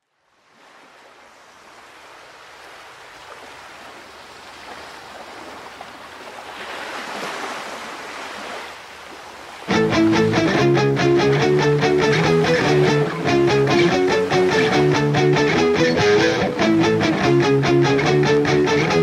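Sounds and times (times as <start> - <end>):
rushing water like surf: 0.2 - 19.0
band with strummed guitar: 9.7 - 19.0.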